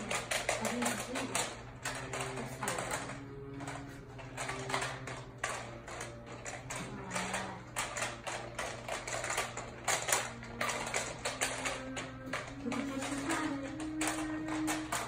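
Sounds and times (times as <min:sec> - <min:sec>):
plastic balls clattering on track: 0:00.0 - 0:15.0.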